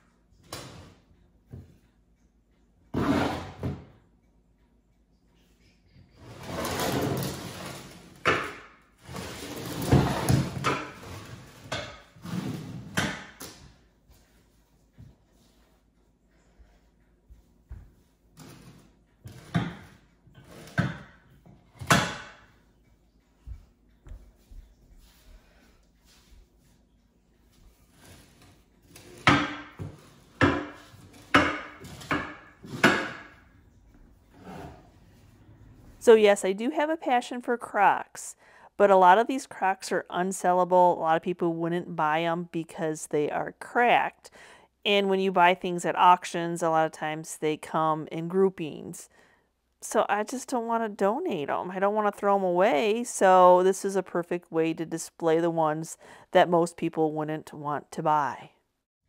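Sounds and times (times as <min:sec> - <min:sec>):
crock scraping on wooden floor: 0:03.0 - 0:03.7, 0:09.0 - 0:13.1.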